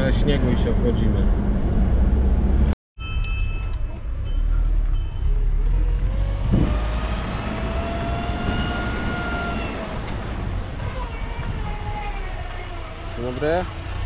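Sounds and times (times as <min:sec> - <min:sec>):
car engine and road rumble: 0:00.0 - 0:14.0
rising whine: 0:04.4 - 0:10.6.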